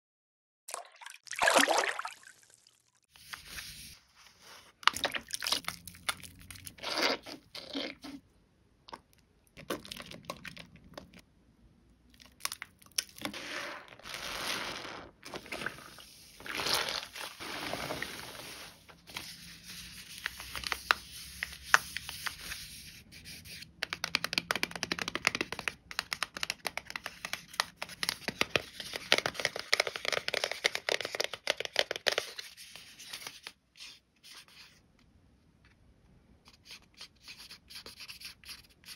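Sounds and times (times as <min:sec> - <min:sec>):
wet soap squishing and crackling: 0:04.7 - 0:11.3, 0:12.0 - 0:13.4.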